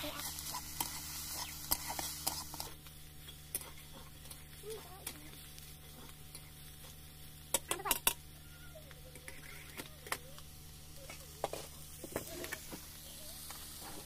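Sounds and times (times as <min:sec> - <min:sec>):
metal spatula scraping a pan: 0:00.0 - 0:02.8.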